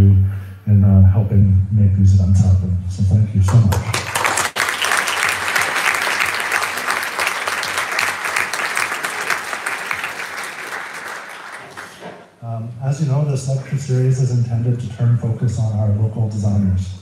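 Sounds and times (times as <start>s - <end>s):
audience applauding: 3.5s - 12.4s.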